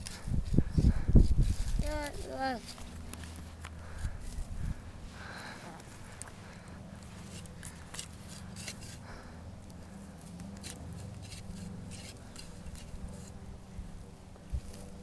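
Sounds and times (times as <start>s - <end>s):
hand saw cutting wood: 7.0s - 9.1s, 10.6s - 13.4s.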